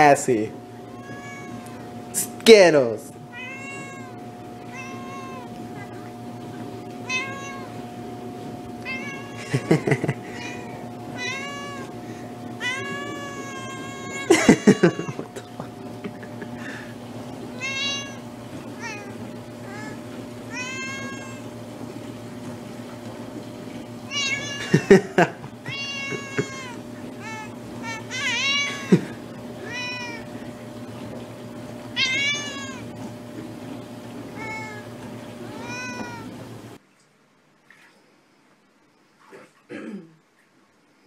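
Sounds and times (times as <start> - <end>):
steady low hum: 0.0 - 37.6
cat meowing: 0.8 - 1.8, 3.3 - 6.1, 7.0 - 7.9, 8.8 - 12.0, 12.6 - 15.3, 17.5 - 18.2, 18.8 - 21.5, 24.1 - 24.8, 25.6 - 28.9, 29.6 - 30.3, 32.0 - 32.9, 34.3 - 36.3.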